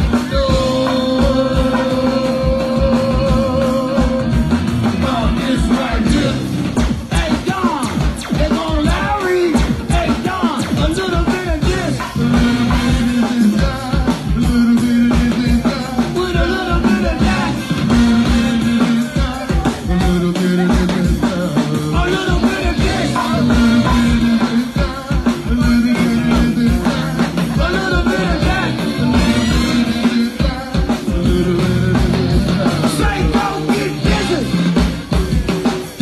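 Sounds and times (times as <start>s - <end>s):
drum and conga beat: 0.0s - 36.0s
live band playing: 0.0s - 36.0s
person singing: 0.0s - 36.0s
repeating bass line: 0.0s - 36.0s.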